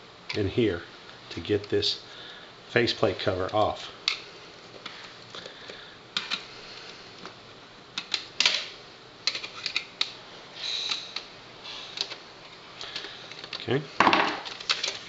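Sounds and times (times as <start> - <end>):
plastic clicks and snaps: 8.0 - 10.2.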